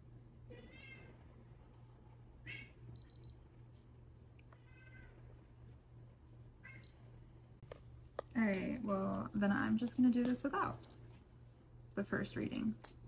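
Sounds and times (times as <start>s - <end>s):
cat meowing: 0.5s - 1.2s, 4.6s - 5.2s.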